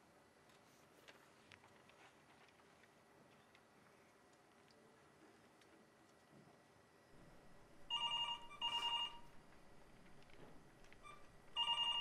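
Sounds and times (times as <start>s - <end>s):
telephone double ring: 7.9s - 9.3s, 11.1s - 12.0s.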